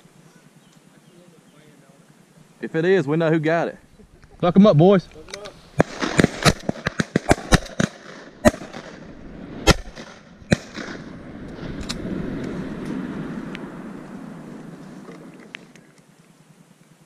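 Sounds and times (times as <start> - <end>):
low even noise: 0.0 - 17.0
shotgun shots: 5.1 - 13.1
distant shotgun shots: 5.1 - 15.5.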